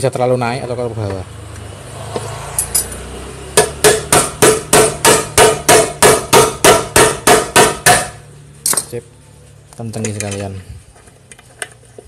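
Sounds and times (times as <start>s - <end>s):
hammer tapping on metal: 3.6s - 8.9s.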